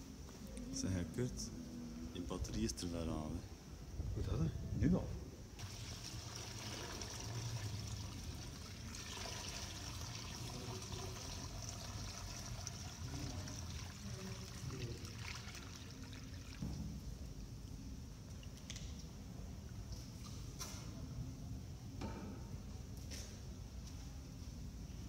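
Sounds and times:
water trickling through sand: 0:05.6 - 0:16.6
water pouring from jug: 0:05.6 - 0:17.0.

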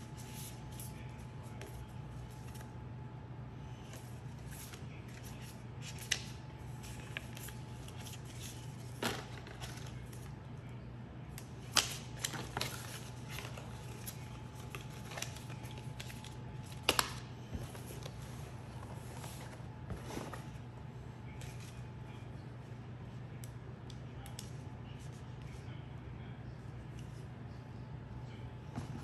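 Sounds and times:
paper rustling: 0:03.8 - 0:10.3, 0:11.6 - 0:20.6
paper snaps and taps: 0:11.4 - 0:12.7.

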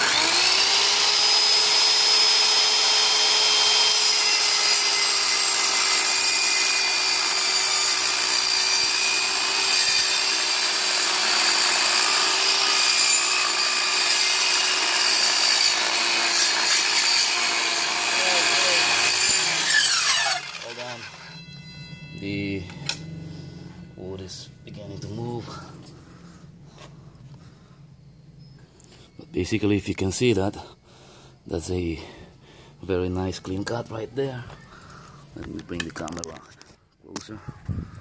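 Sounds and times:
circular saw cutting wood: 0:00.0 - 0:26.4.

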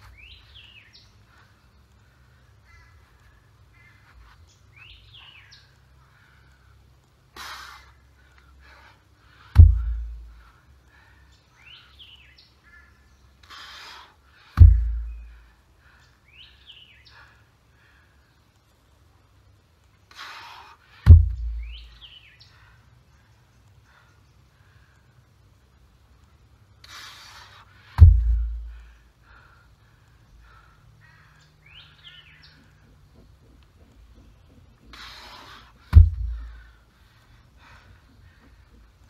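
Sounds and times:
heavy stone thudding on ground: 0:09.6 - 0:10.2, 0:14.6 - 0:15.1, 0:21.0 - 0:21.7, 0:28.0 - 0:28.7, 0:35.9 - 0:36.6.

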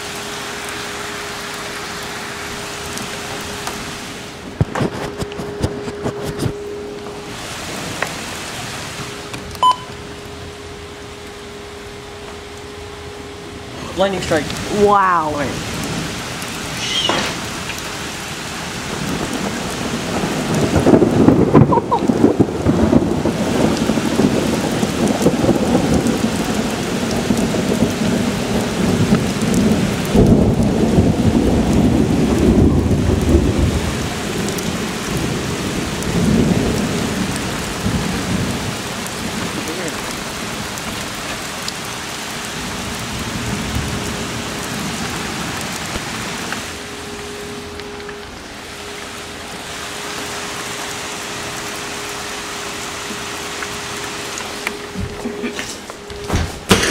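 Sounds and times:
heavy rain: 0:00.0 - 0:56.9
rolling thunder: 0:15.6 - 0:41.1.

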